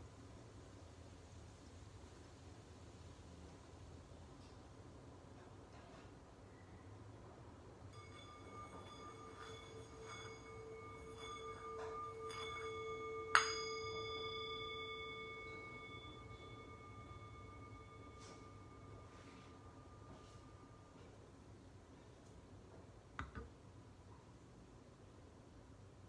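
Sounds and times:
singing bowl ringing hum: 0:07.8 - 0:22.0
singing bowl struck: 0:07.9 - 0:21.2.

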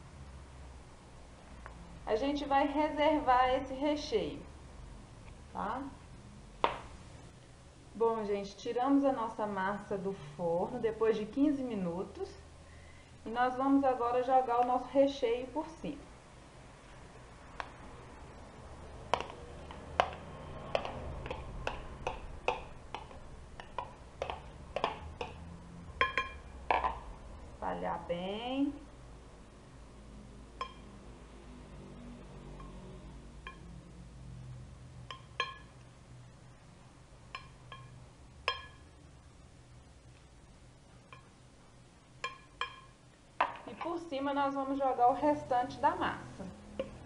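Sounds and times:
spoon clinking on bowl rim: 0:26.0 - 0:26.5, 0:35.1 - 0:35.8, 0:37.4 - 0:38.9.

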